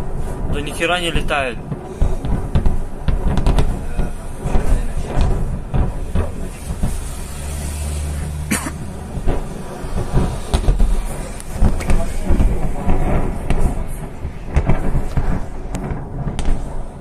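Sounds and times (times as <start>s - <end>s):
explosions booming: 0.0s - 17.0s
heavy low rumble: 0.0s - 17.0s
sharp crack: 0.0s - 17.0s
low engine hum: 1.6s - 16.2s.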